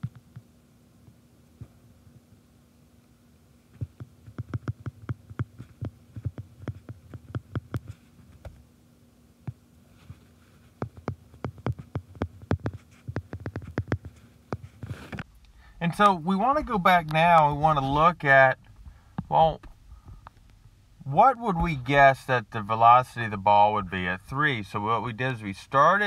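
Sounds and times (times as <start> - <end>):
faint steady hum: 0.0 - 26.0
stylus tapping on glass screen: 3.8 - 7.9, 10.8 - 14.7.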